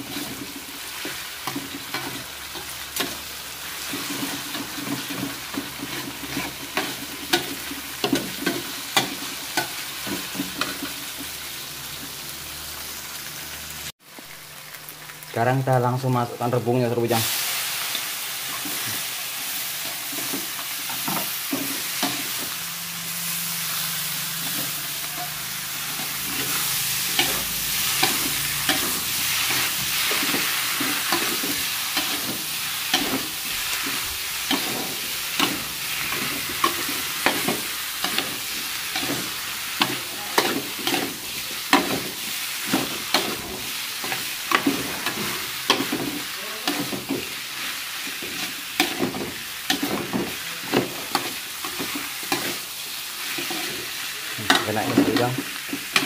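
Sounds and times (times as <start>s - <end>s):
food sizzling in a wok: 0.0s - 56.0s
metal spatula scraping a pan: 23.2s - 56.0s.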